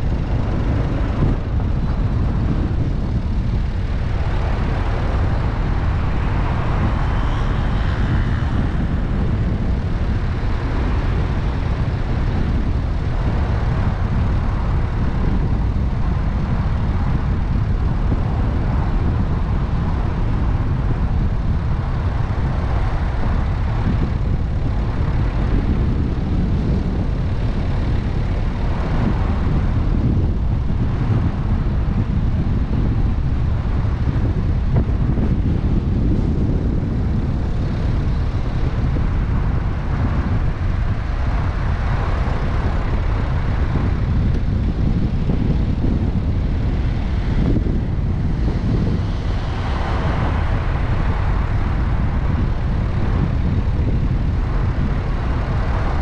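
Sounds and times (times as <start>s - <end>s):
car road and engine rumble: 0.0s - 56.0s.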